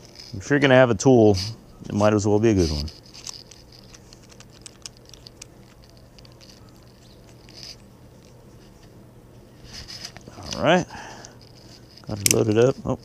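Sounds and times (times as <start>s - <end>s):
metal clicks of bit in brace chuck: 12.0s - 12.7s.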